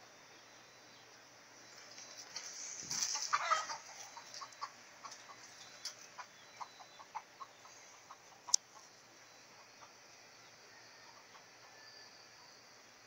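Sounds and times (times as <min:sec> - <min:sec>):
chickens clucking: 0:01.9 - 0:11.8.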